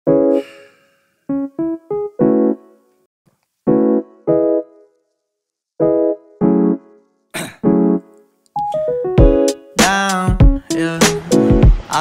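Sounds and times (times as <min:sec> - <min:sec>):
piano chord stabs: 0:00.1 - 0:02.8, 0:03.7 - 0:04.9, 0:05.8 - 0:12.0.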